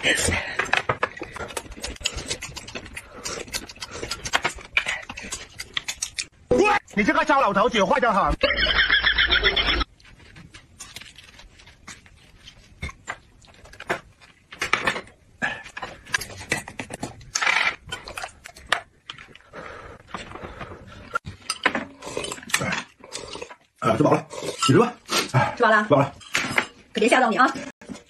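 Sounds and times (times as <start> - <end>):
chewing and mouth sounds: 0.0 - 6.4
food crunching: 1.1 - 6.4, 9.9 - 14.5
dishes clinking: 24.5 - 24.9, 26.1 - 26.8.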